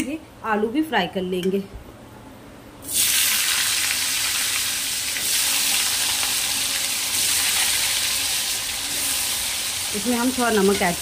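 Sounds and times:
potatoes sizzling in hot oil: 2.9 - 11.0.

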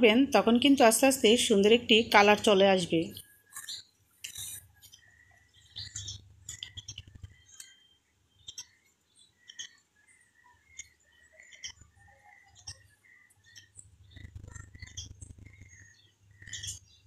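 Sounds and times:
spatula clicking and squeaking in pan: 5.8 - 8.8, 9.4 - 9.8.

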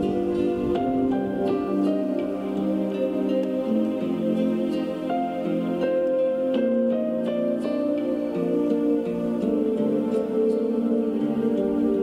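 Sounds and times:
gentle new-age music: 0.0 - 12.0.

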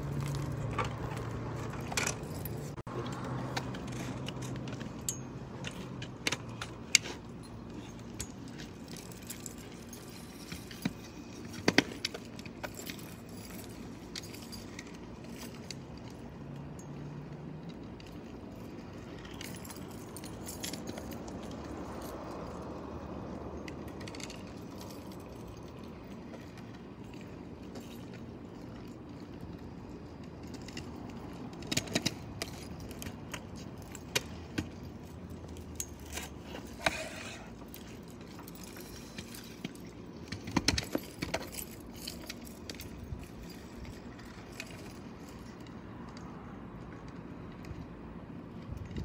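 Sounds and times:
scooter rolling on asphalt: 0.0 - 49.0.

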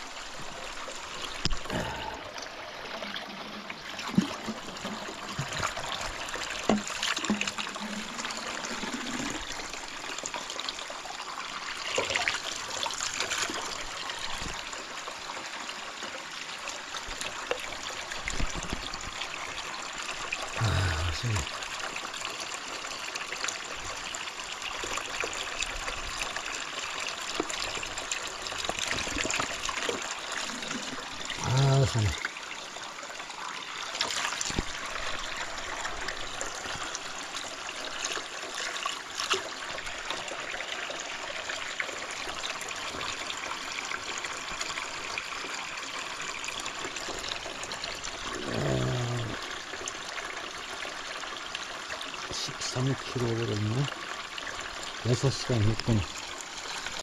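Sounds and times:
plastic bottle filling with water: 0.1 - 57.0
water splashing into a trough: 2.9 - 10.4, 11.8 - 14.8, 33.6 - 45.6
short voice-like sound: 20.6 - 21.5, 31.4 - 32.2, 48.4 - 49.4.

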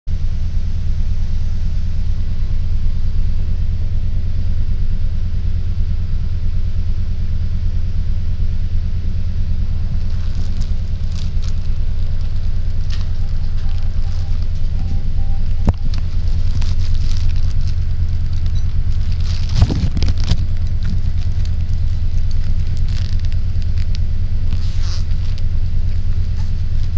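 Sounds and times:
bus engine rumbling: 0.9 - 26.9
electronic beeps: 11.7 - 22.2.

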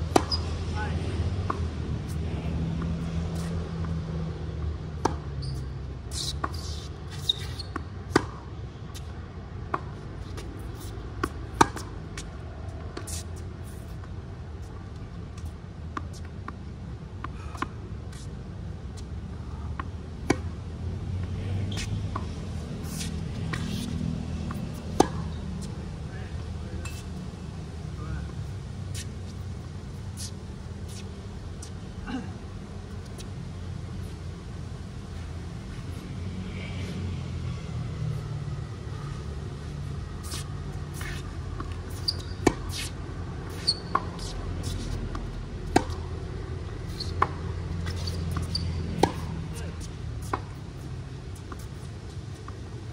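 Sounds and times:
low city rumble: 0.0 - 52.9
racket hitting tennis ball: 0.1 - 0.5, 6.2 - 8.5, 9.7 - 12.3, 19.6 - 20.5, 21.7 - 25.8, 40.1 - 51.8
shoes scuffing on hard court: 21.7 - 25.8, 40.2 - 42.9, 46.8 - 52.6.

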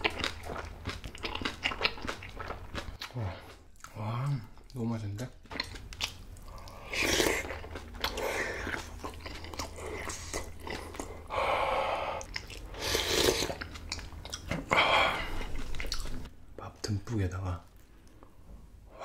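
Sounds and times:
person chewing food: 0.0 - 4.8, 5.4 - 16.3.

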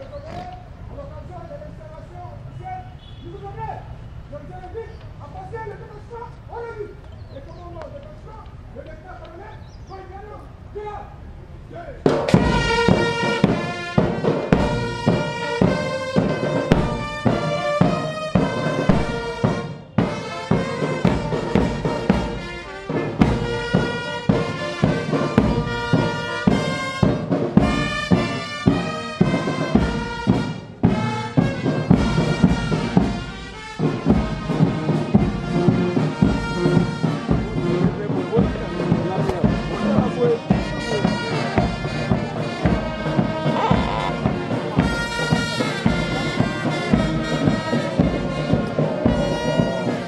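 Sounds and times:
bass drums beating: 12.0 - 50.0
brass instruments playing: 12.1 - 50.0.

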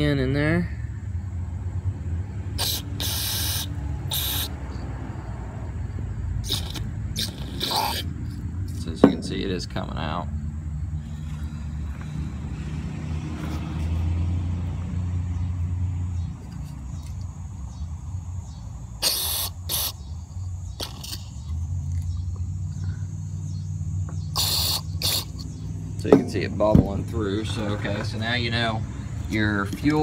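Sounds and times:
aerosol spray hissing: 2.6 - 4.6, 19.0 - 20.0, 24.3 - 25.5.

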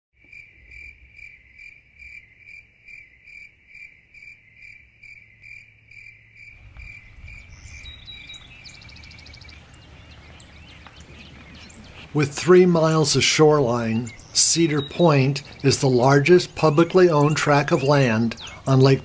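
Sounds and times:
cricket chirping: 0.2 - 12.2
low rumble: 6.4 - 12.2.

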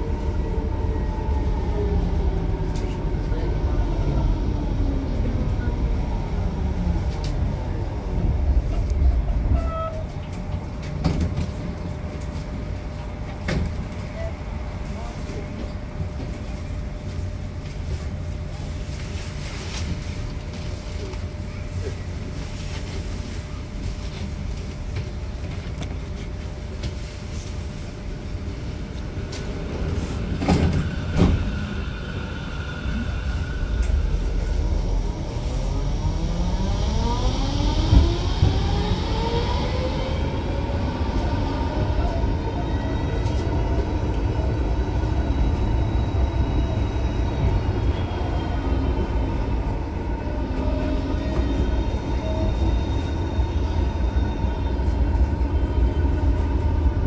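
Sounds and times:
wheels rumbling on rails: 0.0 - 57.0
tram traction drive whine: 28.7 - 57.0.

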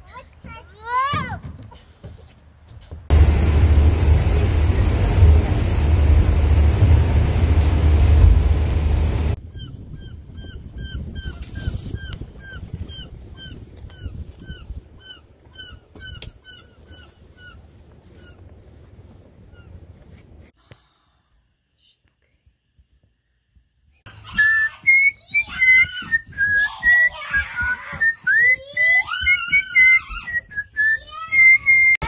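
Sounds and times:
ferry engine rumble: 3.1 - 9.4
water rushing: 3.1 - 9.4.

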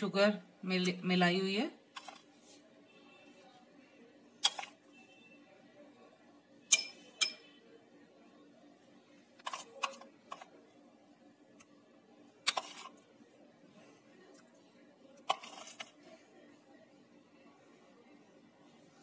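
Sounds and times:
spoon clinking on glass: 6.7 - 7.4.

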